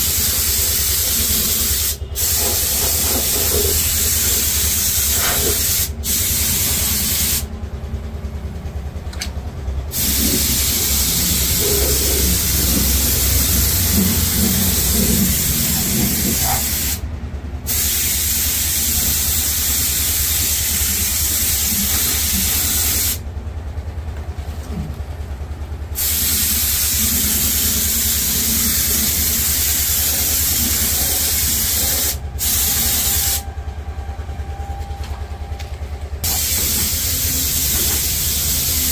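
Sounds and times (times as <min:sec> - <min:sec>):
air spray gun hissing: 0:00.0 - 0:07.5, 0:09.9 - 0:17.1, 0:17.7 - 0:23.2, 0:25.9 - 0:33.4, 0:36.2 - 0:38.9
steady low hum: 0:00.0 - 0:38.9.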